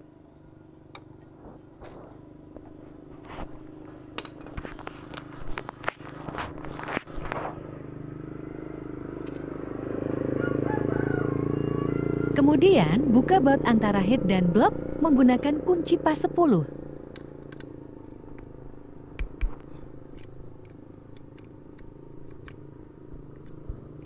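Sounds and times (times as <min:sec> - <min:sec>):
steady low hum: 0:00.0 - 0:10.0, 0:12.4 - 0:24.0
metal tools clinking on engine: 0:09.2 - 0:09.5.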